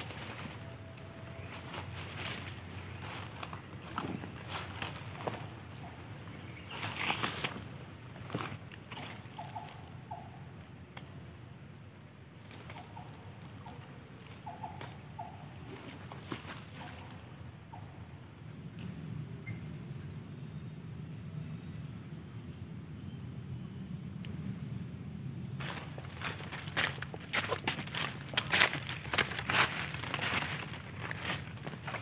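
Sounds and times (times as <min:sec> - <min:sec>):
insects droning: 0:00.0 - 0:32.0
rustles and clicks: 0:06.7 - 0:09.2, 0:25.6 - 0:32.0.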